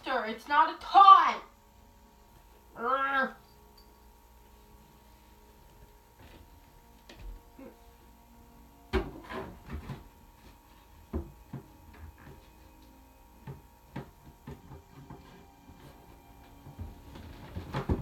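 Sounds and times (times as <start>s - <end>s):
objects knocking on wooden furniture: 8.9s - 10.2s, 11.1s - 12.5s, 13.4s - 18.0s.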